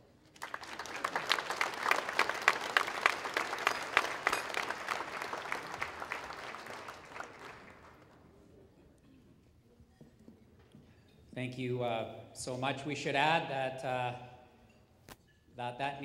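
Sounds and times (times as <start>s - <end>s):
audience applauding: 0.3s - 8.2s.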